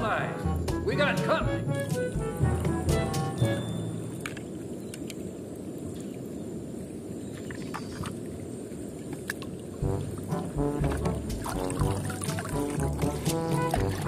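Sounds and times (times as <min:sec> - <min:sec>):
music: 0:00.0 - 0:04.2, 0:09.8 - 0:14.0
low outdoor rumble: 0:09.8 - 0:14.0.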